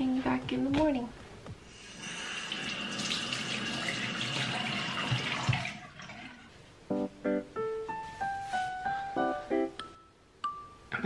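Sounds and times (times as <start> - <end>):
faucet water running into sink: 1.7 - 6.5.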